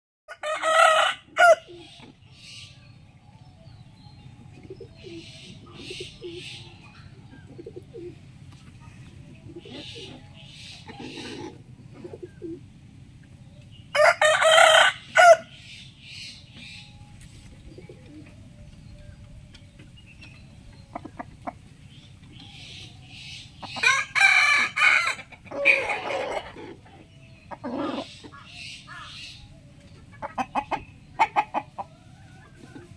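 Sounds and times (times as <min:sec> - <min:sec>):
rooster crowing: 0:00.3 - 0:01.7, 0:14.0 - 0:15.5, 0:23.8 - 0:26.4.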